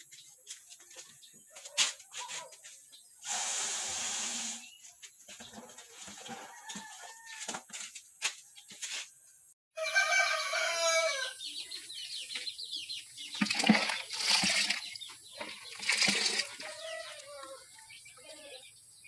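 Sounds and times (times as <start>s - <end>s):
rooster crowing: 6.4s - 7.5s, 9.8s - 11.4s, 16.5s - 17.7s
wet feed sloshing in bucket: 13.3s - 17.8s.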